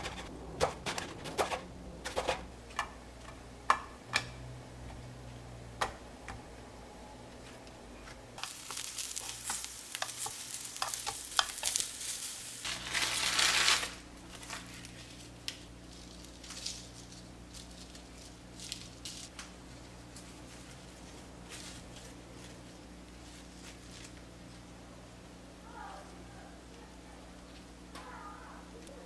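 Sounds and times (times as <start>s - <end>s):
frying pan sizzling: 8.4s - 19.7s.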